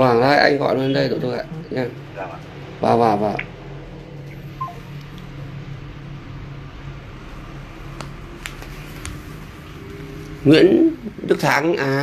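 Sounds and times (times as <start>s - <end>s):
low room hum: 0.0s - 12.0s
short high beep: 4.6s - 4.9s.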